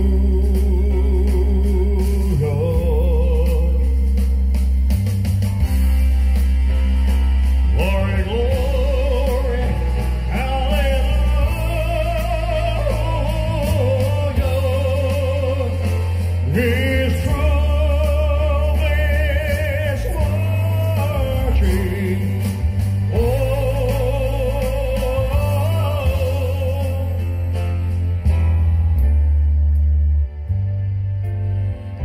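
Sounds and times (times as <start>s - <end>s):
deep bass: 0.0s - 32.0s
person singing with vibrato: 7.4s - 27.5s.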